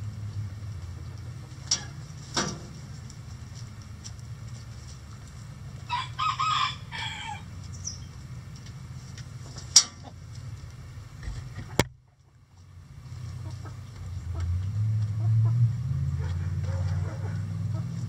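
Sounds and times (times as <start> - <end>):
hens clucking: 0.8 - 10.5, 11.3 - 18.0
rooster crowing: 5.9 - 7.5.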